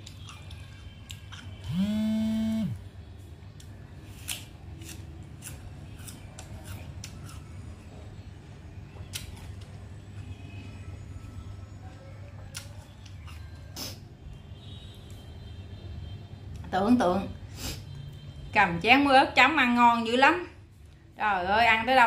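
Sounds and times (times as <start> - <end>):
crunchy chewing: 0.0 - 2.6, 3.6 - 7.8.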